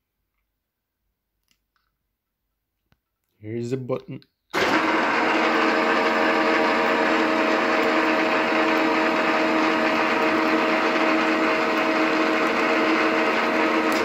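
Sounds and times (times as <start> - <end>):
milling machine humming: 4.6 - 14.0.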